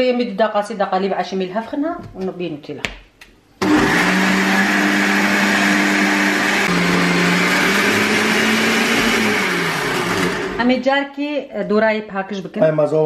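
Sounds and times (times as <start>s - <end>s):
blender motor running: 3.6s - 10.6s.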